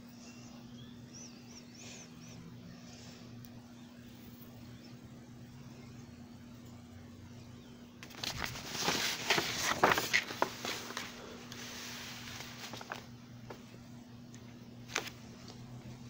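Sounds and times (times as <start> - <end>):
low steady hum: 0.0 - 16.0
handling rustles and knocks: 8.0 - 13.7.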